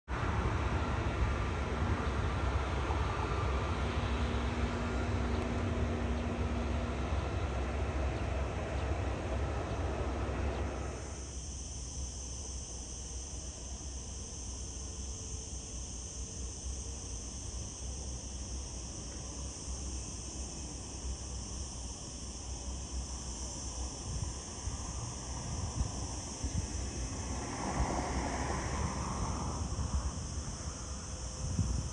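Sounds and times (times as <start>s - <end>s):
high-pitched insect buzz: 5.4s - 31.9s
low wind rumble: 23.9s - 31.9s
jet airliners: 24.0s - 31.9s.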